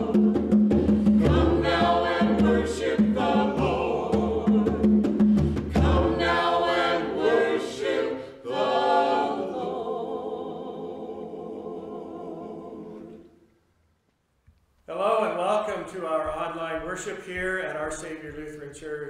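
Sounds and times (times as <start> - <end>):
conga strokes: 0.0 - 9.4
group singing in harmony: 0.0 - 13.6.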